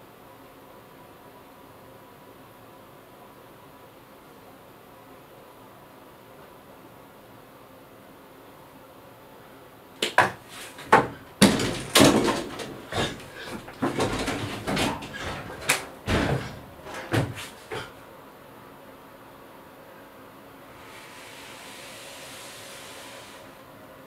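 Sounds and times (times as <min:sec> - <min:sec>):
door knocking and banging: 0:10.0 - 0:18.0
rustling and thudding: 0:10.0 - 0:18.0.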